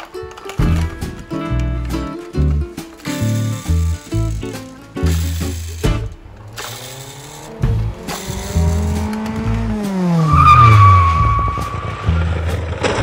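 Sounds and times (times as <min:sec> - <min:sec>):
background music: 0:00.0 - 0:12.6
falling engine-like tone: 0:06.4 - 0:13.0
tire screech: 0:06.4 - 0:13.0.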